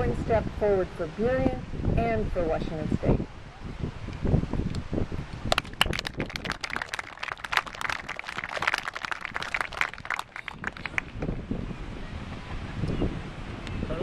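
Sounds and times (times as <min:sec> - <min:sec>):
audience applauding: 0:05.5 - 0:11.2.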